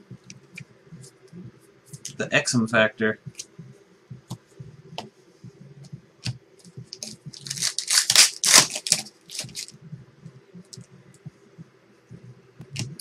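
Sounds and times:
cards rustling and clicking: 6.9 - 9.7
wrapper tearing and crinkling: 7.0 - 9.7.

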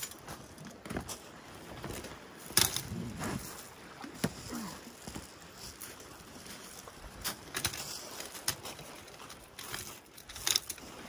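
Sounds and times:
pebbles shifting underfoot: 0.0 - 11.0
short grunts: 4.0 - 5.0.

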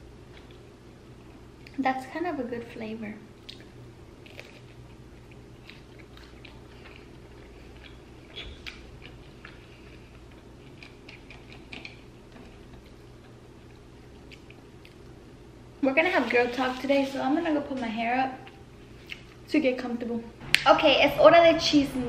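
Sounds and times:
faint steady hum: 0.0 - 22.0
person chewing: 0.3 - 1.8, 3.4 - 15.2, 18.5 - 19.4.

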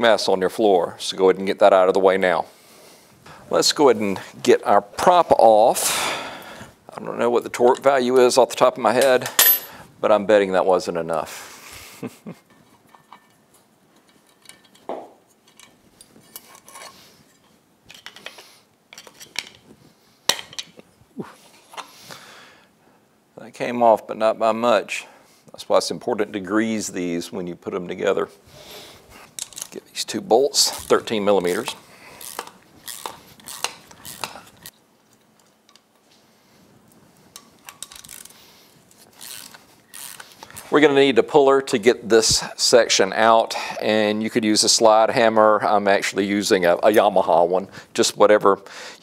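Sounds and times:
metal clinks and knocks: 9.0 - 9.8
metal clicks and clinks: 14.0 - 19.6.

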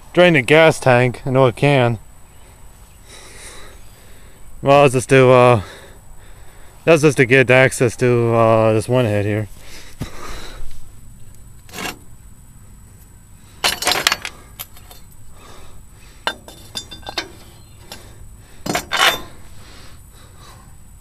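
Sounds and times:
metal bolts clinking and rattling: 11.6 - 12.1, 13.6 - 15.2, 16.2 - 19.4.

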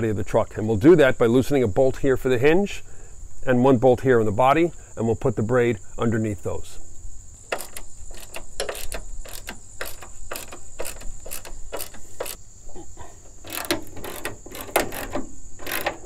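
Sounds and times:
high insect trill: 0.0 - 16.0
ratchet wrench clicking: 7.5 - 12.4, 13.4 - 16.0.

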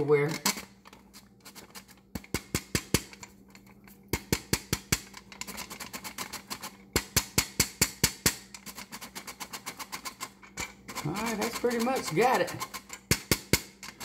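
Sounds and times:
flour sifter clicking: 0.0 - 14.0.

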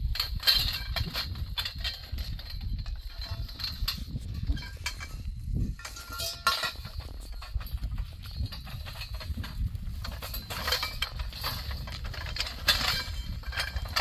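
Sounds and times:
tent poles clattering: 0.0 - 14.0.

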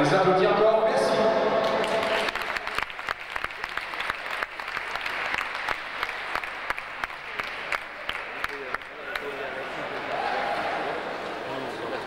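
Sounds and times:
audience applauding: 1.6 - 10.6.

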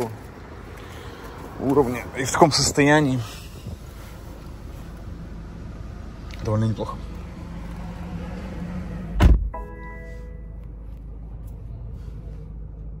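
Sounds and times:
short chime: 9.6 - 10.6.

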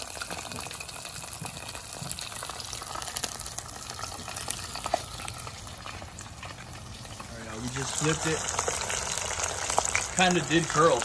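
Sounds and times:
meat deep-frying in sizzling oil: 0.0 - 11.0.

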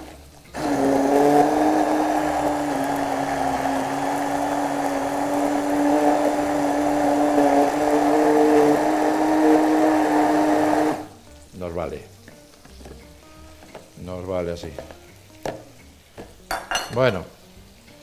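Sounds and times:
immersion blender running: 0.0 - 11.2.

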